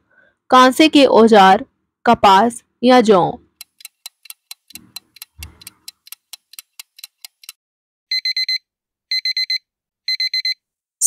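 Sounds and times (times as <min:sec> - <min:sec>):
fast clock ticking: 0:03.6 - 0:07.6
alarm clock beeps: 0:08.1 - 0:10.6.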